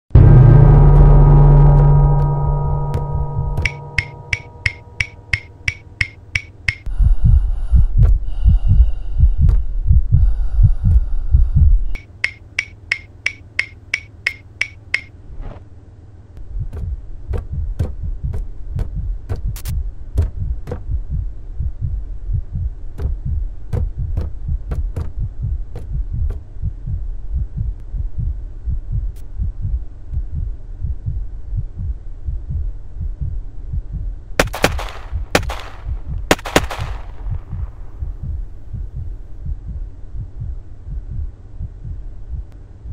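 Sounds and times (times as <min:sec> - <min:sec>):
deep throbbing: 0:00.1 - 0:12.1, 0:16.4 - 0:42.9
low throbbing hum: 0:00.1 - 0:42.9
scattered clicks: 0:03.6 - 0:06.9, 0:12.0 - 0:15.1
sharp ticks: 0:03.6 - 0:06.9, 0:11.9 - 0:15.1.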